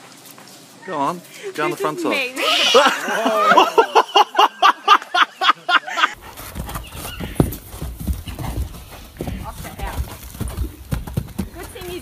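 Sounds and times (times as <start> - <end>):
horse hooves on dirt: 6.2 - 12.0.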